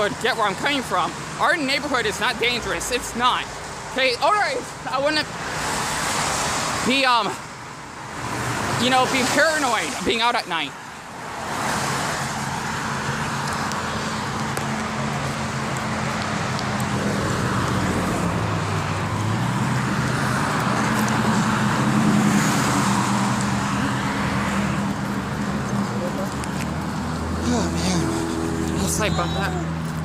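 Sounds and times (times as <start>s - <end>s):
road traffic engine hum: 0.0s - 30.0s.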